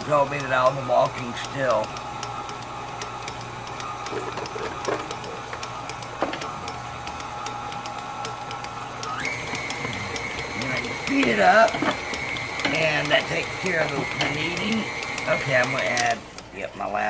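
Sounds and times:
stand mixer motor whine: 0.0s - 16.6s.

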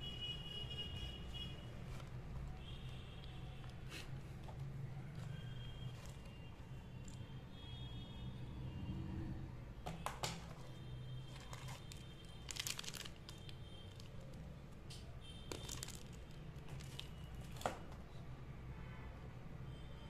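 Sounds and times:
plastic bag crinkling: 11.2s - 14.5s, 15.5s - 17.7s.

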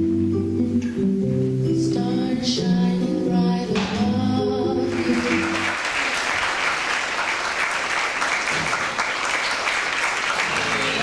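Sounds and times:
song ending: 0.0s - 5.8s
audience applauding: 4.9s - 11.0s.

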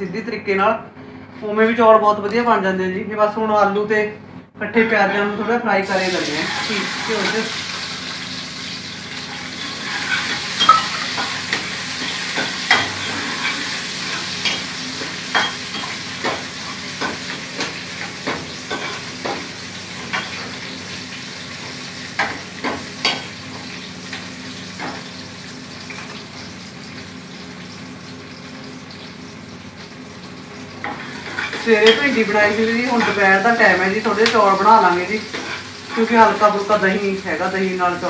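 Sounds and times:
potatoes sizzling in a pot: 5.8s - 38.0s.

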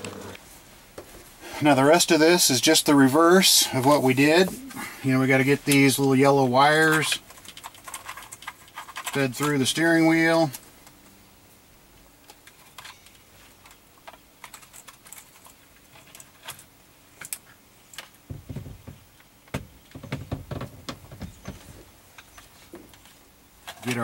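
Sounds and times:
dull bumps and rubbing: 18.3s - 21.9s.

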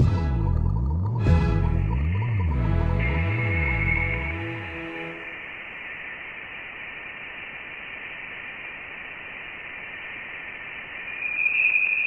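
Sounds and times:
thin steady hiss: 3.5s - 12.0s.

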